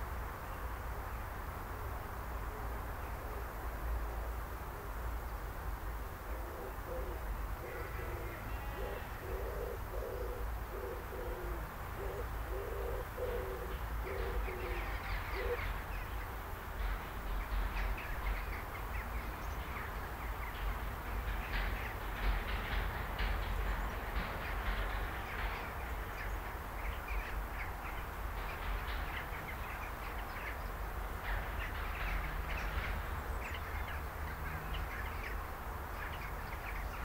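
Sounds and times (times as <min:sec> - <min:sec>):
pigeon cooing: 0:06.3 - 0:15.7
small birds chirping: 0:23.6 - 0:37.0.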